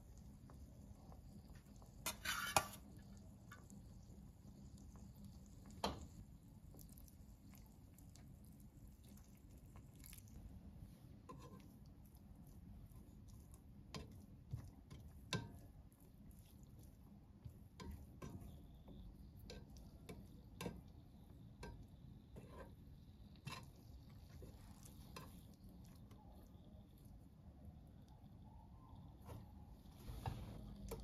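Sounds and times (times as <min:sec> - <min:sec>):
spatula scraping a pot: 0:02.0 - 0:03.0, 0:11.2 - 0:11.8, 0:21.6 - 0:25.6.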